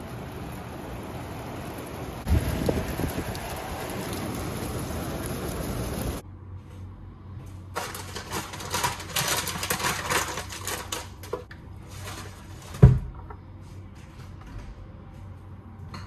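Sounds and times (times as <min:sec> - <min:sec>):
plastic packet crinkling: 0:07.8 - 0:11.3.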